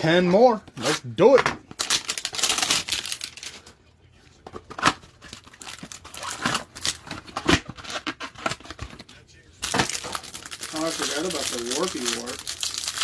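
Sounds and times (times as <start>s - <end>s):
packaging crackles and rustles: 1.7s - 3.7s, 4.6s - 13.0s
packaging tearing and crinkling: 1.8s - 3.6s, 4.8s - 8.8s, 9.6s - 13.0s.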